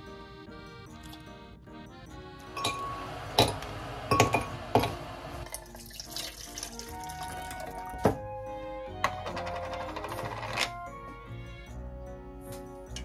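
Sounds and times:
background music: 0:00.0 - 0:13.0
water pouring into plastic jug: 0:05.4 - 0:08.0.

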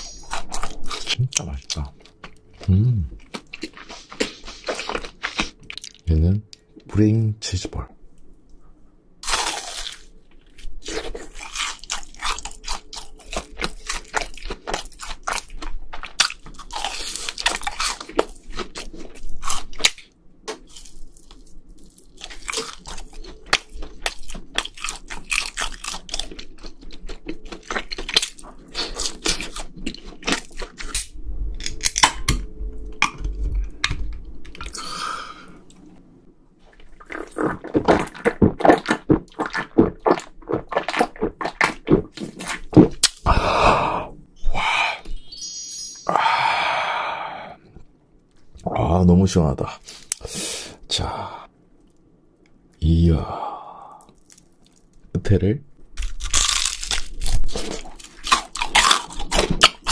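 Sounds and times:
crunching fried food: 0:00.0 - 0:06.1, 0:09.2 - 0:32.1, 0:36.6 - 0:43.3, 0:53.8 - 0:55.1, 0:55.9 - 0:59.9.

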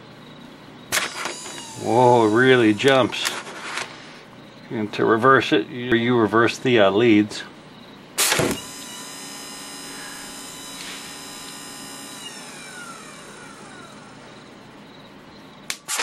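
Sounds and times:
electric motor whine: 0:01.0 - 0:03.9, 0:08.2 - 0:14.5.

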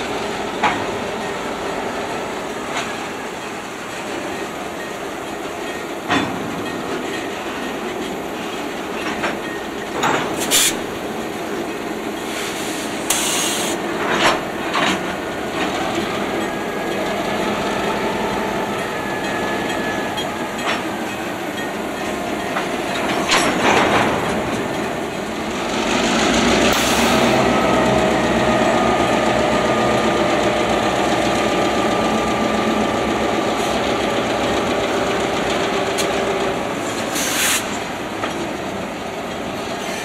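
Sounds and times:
diesel locomotive running: 0:00.0 - 0:40.0
brief high hisses: 0:10.4 - 0:10.8, 0:12.3 - 0:13.8, 0:37.1 - 0:37.7.

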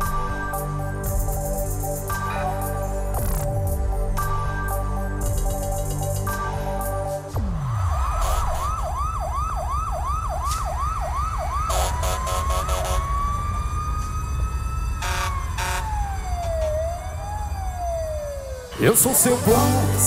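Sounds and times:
deep bass rumble: 0:00.0 - 0:09.8
siren sound effect: 0:07.1 - 0:19.9.

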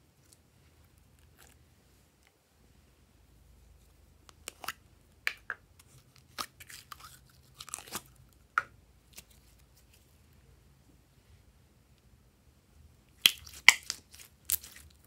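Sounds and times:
slime popping and crackling: 0:13.2 - 0:15.0.

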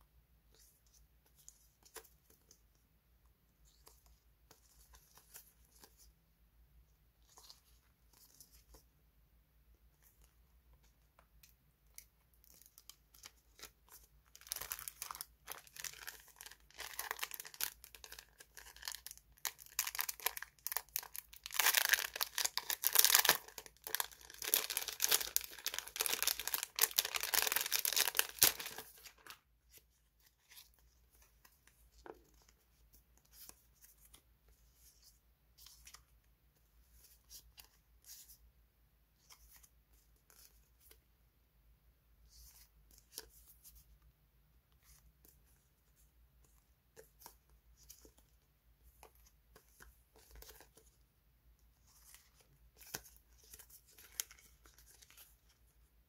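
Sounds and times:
plastic packet crinkling: 0:14.4 - 0:29.4.

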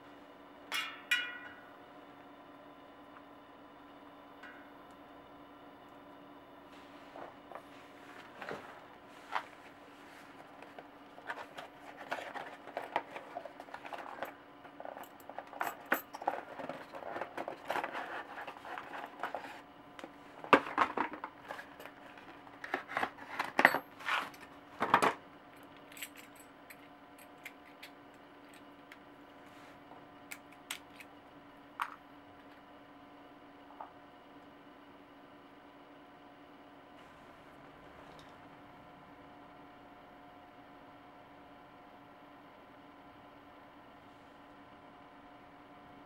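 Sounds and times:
faint steady hum: 0:00.0 - 0:46.0
cardboard packaging rustling: 0:06.8 - 0:14.2.

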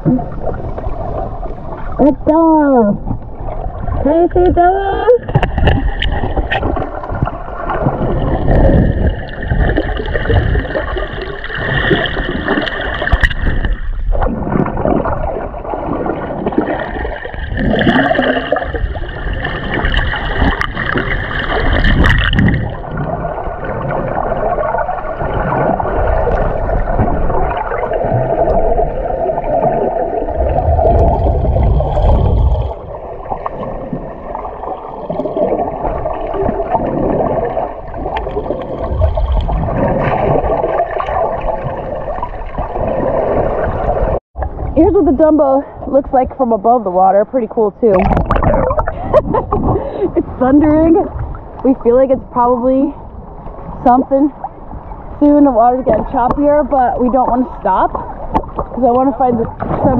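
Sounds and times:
muffled underwater sloshing: 0:00.0 - 0:59.9.

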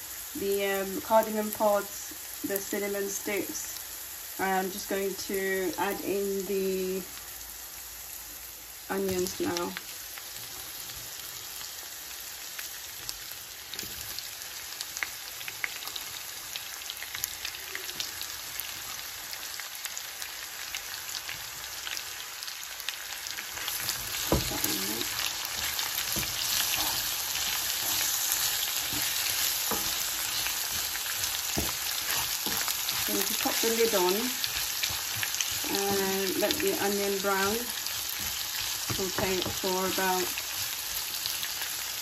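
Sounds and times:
onions sizzling in hot oil: 0:00.0 - 0:42.0
spatula scraping and knocking pan: 0:23.6 - 0:40.0.

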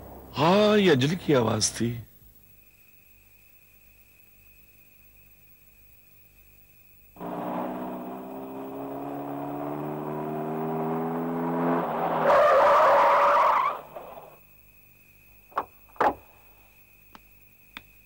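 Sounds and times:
car engine running: 0:07.2 - 0:14.4
tyre skid: 0:07.2 - 0:14.4.

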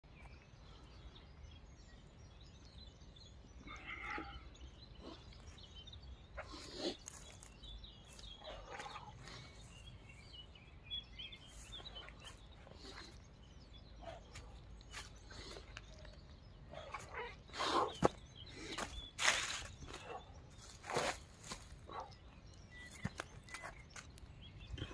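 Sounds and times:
bird chirps: 0:00.1 - 0:24.9
rustling of dry leaves and grass: 0:14.4 - 0:24.9.

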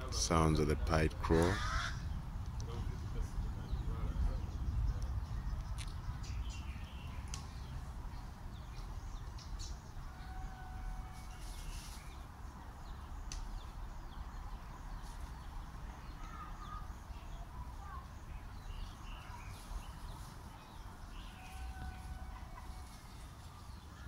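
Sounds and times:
distant poultry calling: 0:00.0 - 0:02.3, 0:09.9 - 0:12.1, 0:21.0 - 0:24.0
steady low rumble: 0:00.0 - 0:10.1.

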